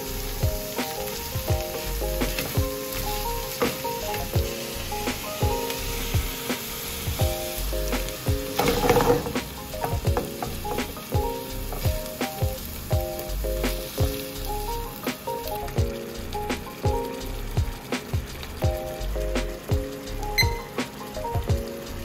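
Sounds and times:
spatula stirring in pan: 0.0s - 12.9s
background music with steady beat: 0.0s - 22.0s
food sizzling in a frying pan: 0.0s - 22.0s.

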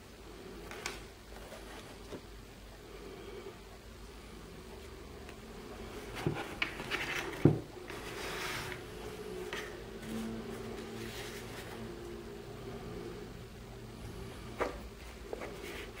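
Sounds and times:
cards sliding across table: 6.0s - 11.9s.

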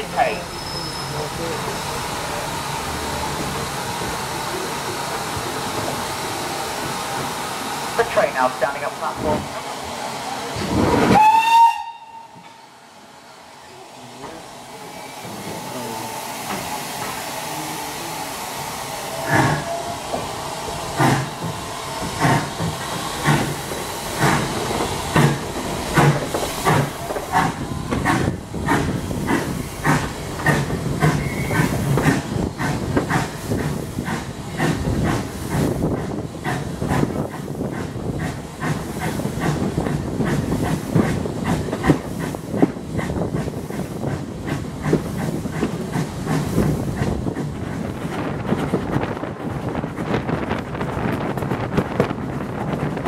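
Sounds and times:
steam hissing: 0.0s - 53.0s
steam locomotive exhaust beats: 10.5s - 12.6s, 13.9s - 53.0s.

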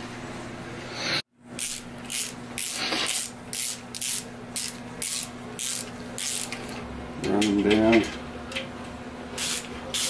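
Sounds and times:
low shop hum: 0.0s - 10.0s
ratchet wrench rasping: 1.6s - 6.6s.

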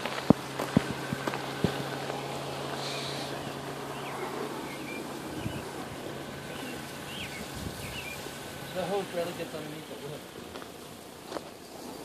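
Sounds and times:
bird chirping: 2.1s - 9.1s.

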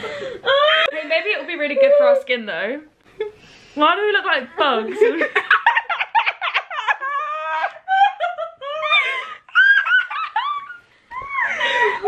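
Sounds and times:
girls giggling: 4.9s - 12.0s.

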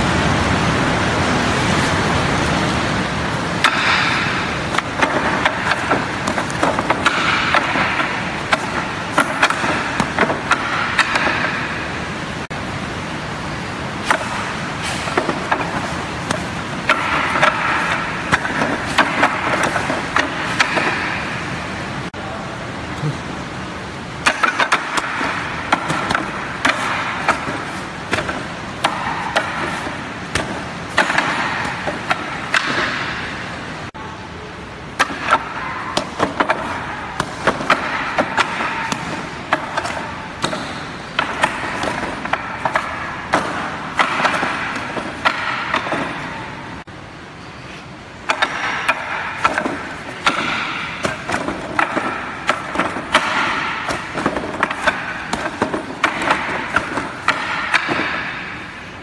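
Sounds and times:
hands striking wooden dummy: 3.6s - 11.7s, 14.0s - 21.4s, 24.2s - 33.3s, 35.0s - 46.4s, 48.3s - 58.8s.

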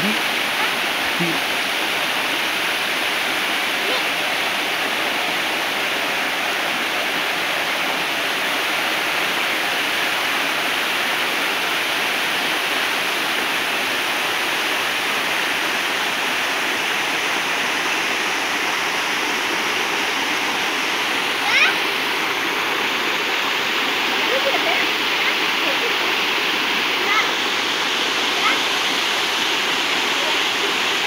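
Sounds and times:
waterfall rushing: 0.0s - 31.0s.

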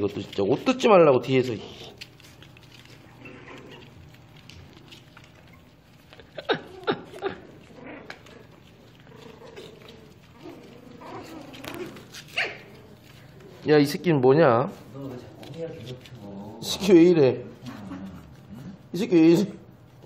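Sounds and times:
puppies yipping: 1.5s - 13.4s.

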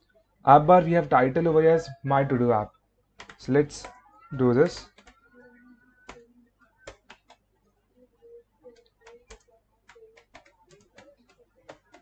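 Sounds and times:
keyboard typing: 3.2s - 5.4s, 6.0s - 7.5s, 8.6s - 12.0s.

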